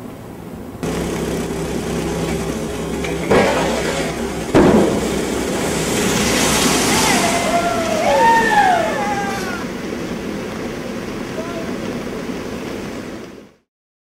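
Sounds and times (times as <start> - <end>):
sharp impacts: 0.8 - 7.5
small engine running: 0.8 - 9.6
rushing whitewater: 0.8 - 13.7.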